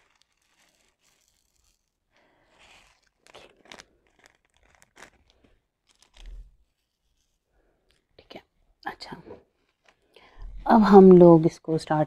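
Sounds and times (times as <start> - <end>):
plastic film crinkling: 0.0 - 8.2.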